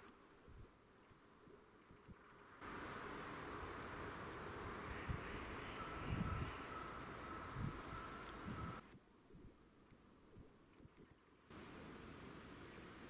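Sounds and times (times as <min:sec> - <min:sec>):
high thin decoy whistle: 0:08.9 - 0:11.4.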